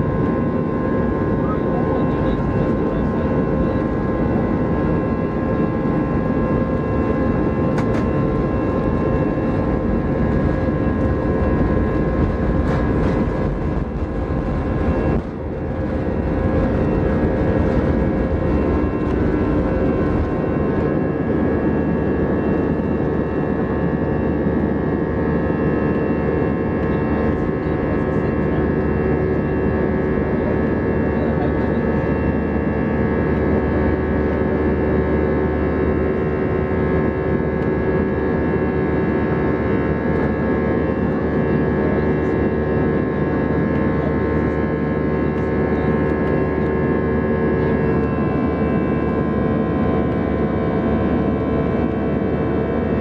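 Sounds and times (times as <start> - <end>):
jet engines roaring: 0.0 - 34.3
wheels rumbling on runway: 7.5 - 22.7.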